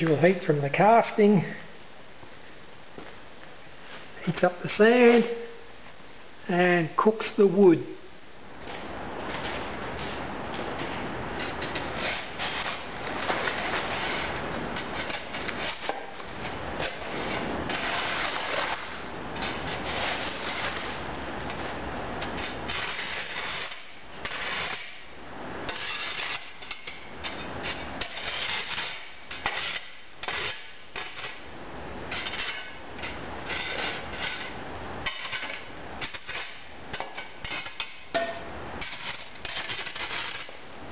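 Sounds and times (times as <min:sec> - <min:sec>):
shovel scraping over cast iron: 0:08.6 - 0:25.1, 0:25.7 - 0:31.5, 0:32.1 - 0:40.6.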